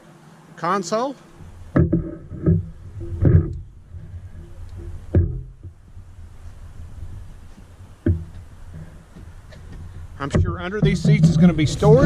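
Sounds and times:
low steady rumble: 0:01.3 - 0:12.0
footsteps thudding on boat deck: 0:06.8 - 0:12.0.

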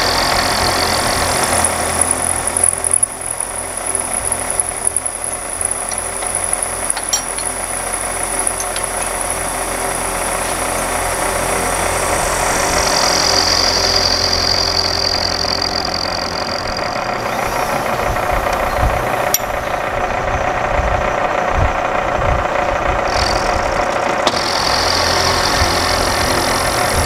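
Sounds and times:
milling machine cutting iron: 0:00.0 - 0:20.2, 0:23.0 - 0:27.0
sharp ticks: 0:01.4 - 0:09.5.

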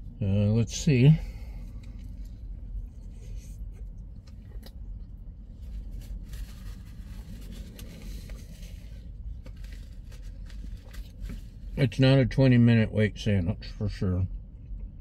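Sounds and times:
low car cabin rumble: 0:00.0 - 0:15.0
person chewing: 0:01.6 - 0:06.1
small clicks and crunches: 0:03.7 - 0:11.6.

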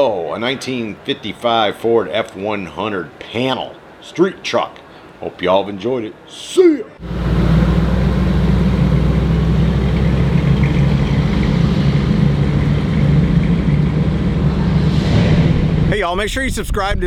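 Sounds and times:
truck engine running steadily: 0:07.0 - 0:14.9.

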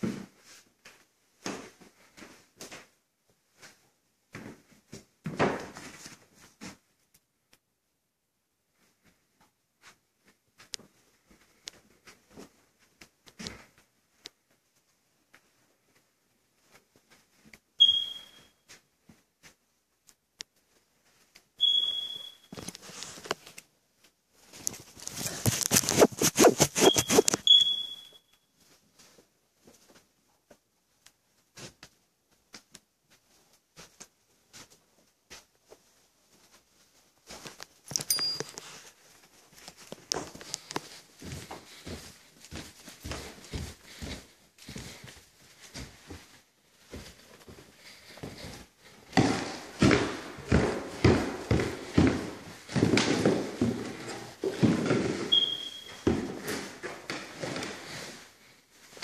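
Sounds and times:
high-pitched beep tone: 0:17.8 - 0:18.4, 0:21.6 - 0:22.5, 0:26.4 - 0:28.2, 0:55.3 - 0:56.0
footsteps and knocks: 0:24.6 - 0:27.5, 0:37.2 - 0:58.2
camera handling noise: 0:25.1 - 0:27.5
loud strokes: 0:25.7 - 0:27.4.

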